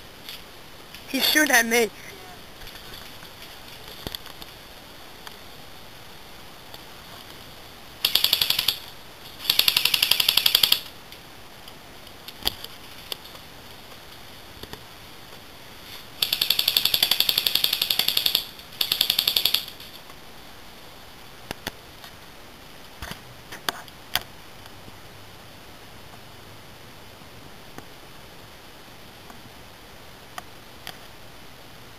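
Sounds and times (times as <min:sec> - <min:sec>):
airsoft gun firing bursts: 0:08.0 - 0:10.9, 0:16.2 - 0:19.8.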